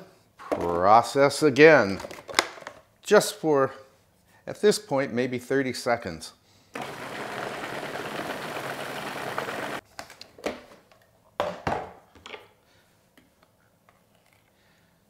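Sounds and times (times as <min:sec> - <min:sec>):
food processor running: 0:06.8 - 0:09.8.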